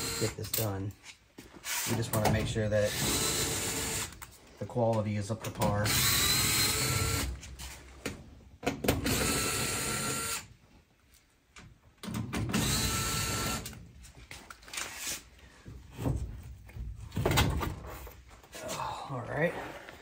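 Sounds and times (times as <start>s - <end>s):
cordless drill whining: 0.0s - 0.4s, 2.9s - 4.2s, 5.9s - 7.3s, 9.0s - 10.5s, 12.6s - 13.8s.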